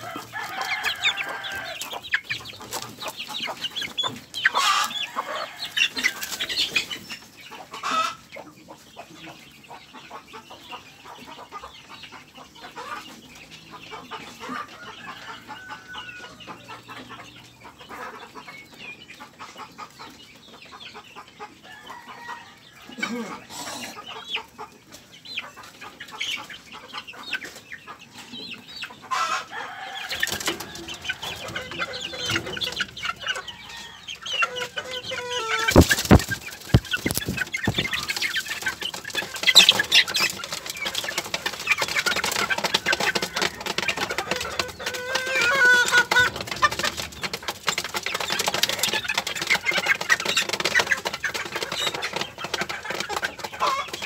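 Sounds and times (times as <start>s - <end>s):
chickens clucking: 0.0s - 54.0s
wings flapping: 35.6s - 44.4s.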